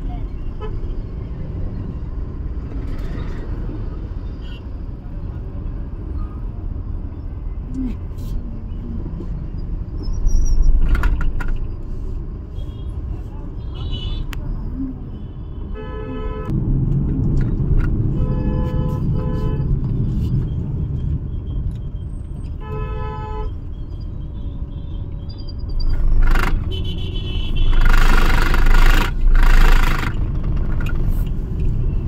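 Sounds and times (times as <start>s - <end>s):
traffic engine rumble: 0.0s - 32.0s
vehicle horns honking: 15.2s - 16.5s, 18.1s - 19.7s, 22.6s - 23.6s, 26.4s - 30.0s.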